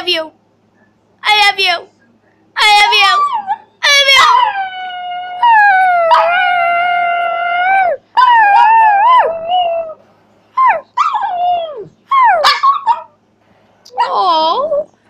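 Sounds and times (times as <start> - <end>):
small dog howling: 2.7 - 10.0, 10.6 - 13.1.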